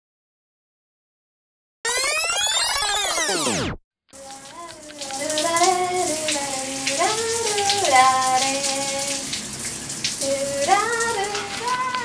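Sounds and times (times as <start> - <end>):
woman singing: 4.2 - 9.2, 10.2 - 12.0
shower water running: 4.2 - 12.0.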